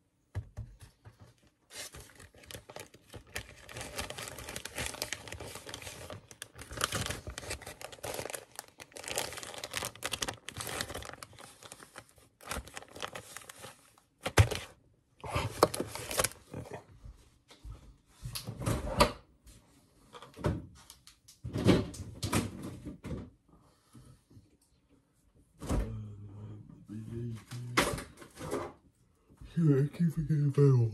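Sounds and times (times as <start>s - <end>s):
plastic bag crinkling: 1.7s - 14.7s, 15.4s - 16.5s.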